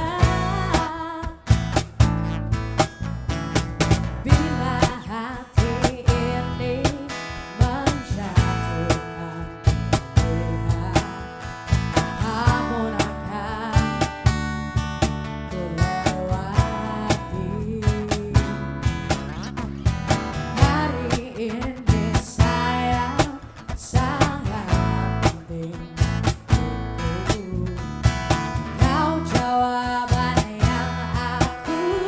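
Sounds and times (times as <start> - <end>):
guitar: 0.0 - 32.0
drum beat: 0.2 - 5.0, 9.7 - 13.1, 13.8 - 15.3, 18.0 - 23.4.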